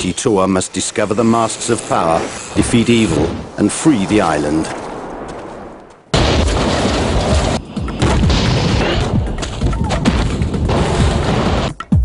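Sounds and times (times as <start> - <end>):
booming impacts and crashes: 2.6 - 11.8.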